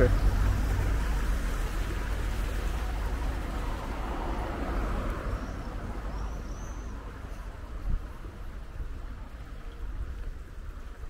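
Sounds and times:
car driving past: 0.0s - 7.4s
bird chirping: 5.4s - 7.5s.

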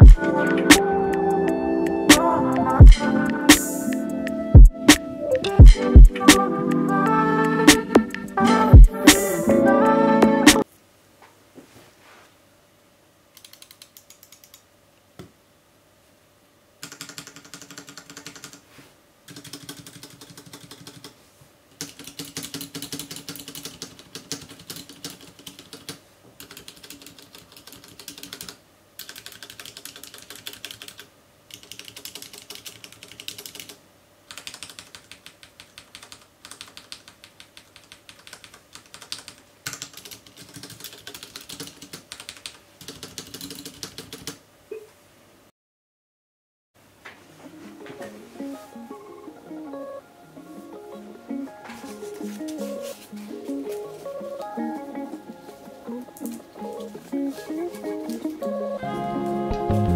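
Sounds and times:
mechanical keyboard typing: 13.4s - 14.6s, 16.8s - 18.6s, 19.3s - 21.2s, 21.8s - 44.4s.

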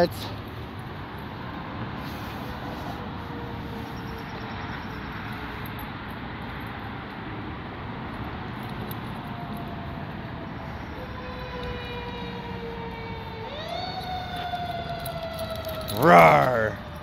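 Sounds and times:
faint siren wailing: 8.8s - 17.0s.

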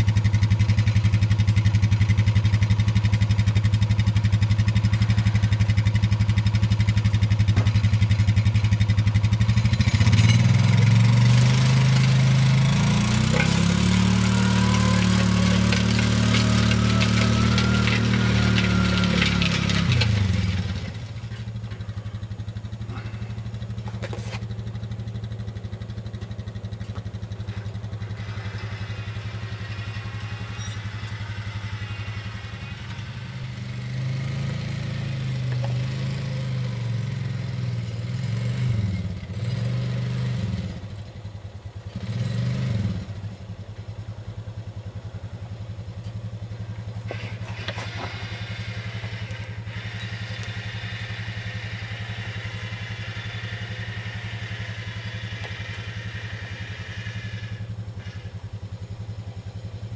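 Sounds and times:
atv engine running under load: 0.0s - 59.9s
disc harrow clattering: 9.8s - 21.8s, 46.6s - 57.0s.

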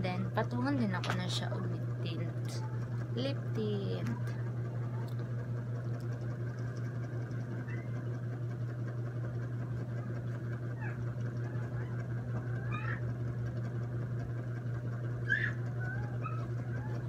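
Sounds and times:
steady low hum: 0.0s - 17.0s
high chirping animal calls: 15.2s - 16.9s.

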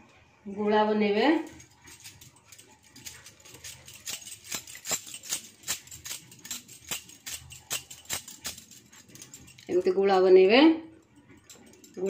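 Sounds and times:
light clicking jingles: 1.4s - 10.0s, 11.0s - 12.0s.

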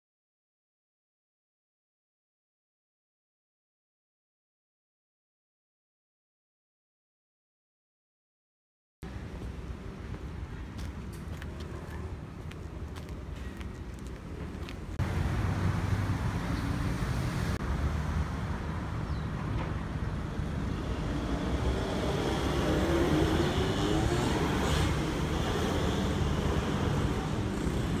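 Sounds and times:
rumble of passing cars: 9.0s - 28.0s.

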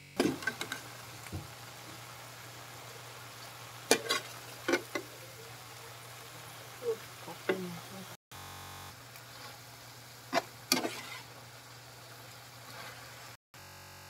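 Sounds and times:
greens sizzling in a wok: 0.1s - 13.4s
metal spatula scraping pan: 3.9s - 5.0s, 10.3s - 11.4s.

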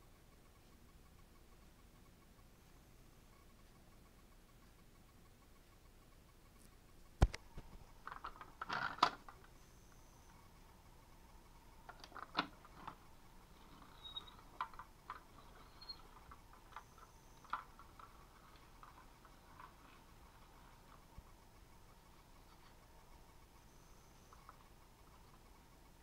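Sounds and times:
plastic toy clicks and rattles: 8.0s - 9.5s, 11.9s - 13.0s.

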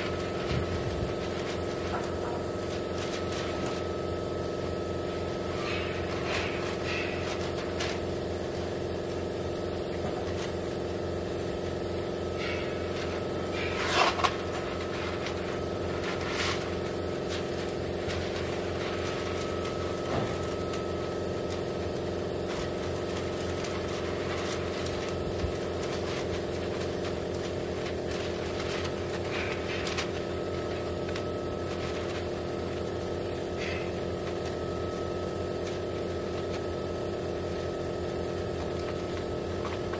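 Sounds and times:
steady motor hum: 0.0s - 39.9s
paper crinkling and rustling: 13.6s - 32.9s.

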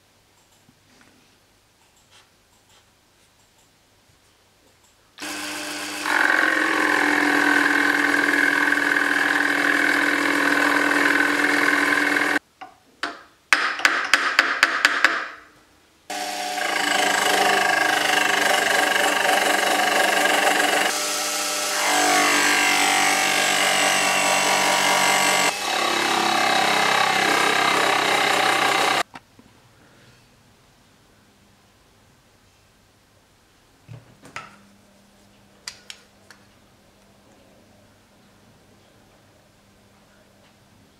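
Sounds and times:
milling machine cutting metal: 5.2s - 12.4s, 16.1s - 29.0s.

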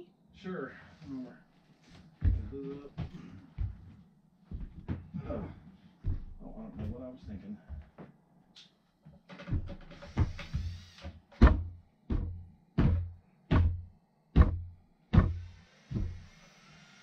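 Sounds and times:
heavy knocks on wall panel: 9.4s - 15.4s.

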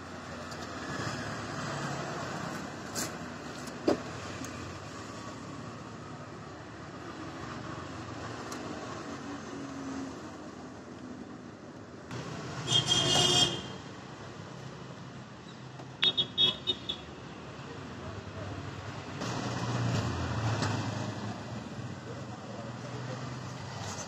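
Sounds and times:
vehicle horn honk: 12.6s - 13.8s.

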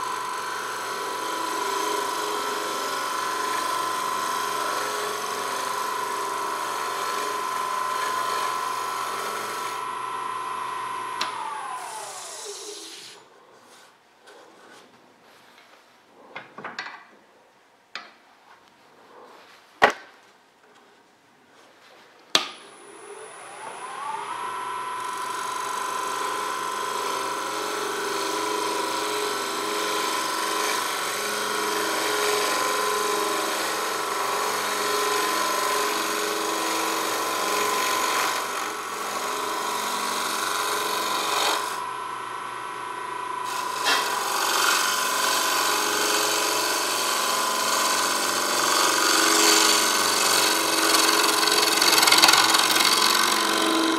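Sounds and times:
lathe motor whine: 0.0s - 13.2s, 22.6s - 53.9s
gouge cutting wood hiss: 11.8s - 13.2s.

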